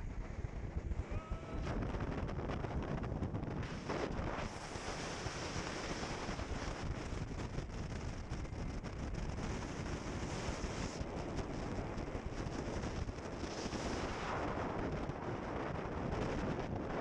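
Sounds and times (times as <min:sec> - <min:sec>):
wind buffeting microphone: 0:00.0 - 0:17.0
boat engine and water rush: 0:00.2 - 0:17.0.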